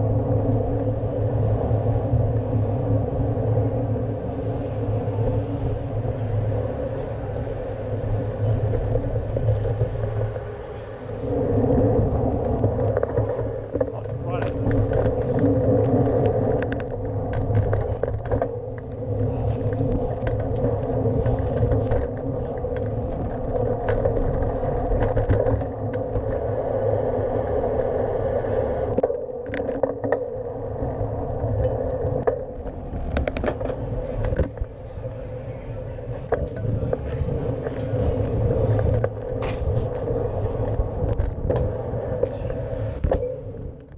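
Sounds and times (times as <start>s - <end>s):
bicycle tyres rumbling on road: 0.0s - 43.9s
clicks and rattles from bumps: 12.5s - 26.4s, 31.6s - 34.7s.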